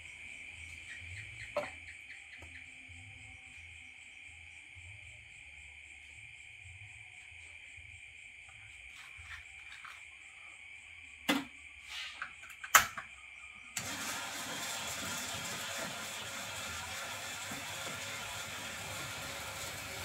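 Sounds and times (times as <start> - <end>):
crickets trilling: 0.0 - 13.8.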